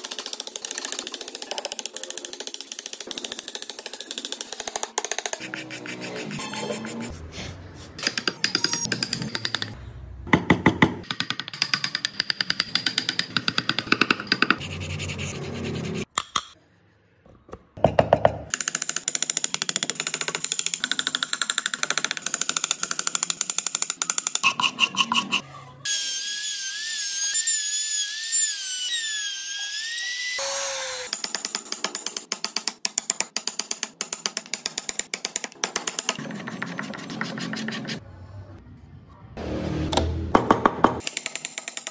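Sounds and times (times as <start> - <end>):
chisel cutting and scraping wood: 0.7 - 7.2
rotary carving tool sanding wood: 5.2 - 7.3.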